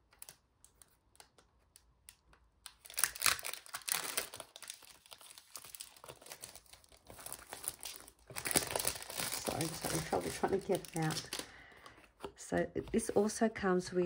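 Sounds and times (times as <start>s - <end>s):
packaging crinkling and rustling: 2.6s - 13.2s.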